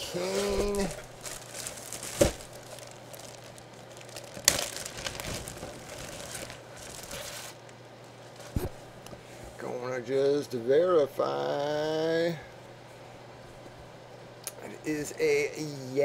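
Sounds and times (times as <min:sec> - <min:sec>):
plastic bag crinkling: 0:00.0 - 0:07.7.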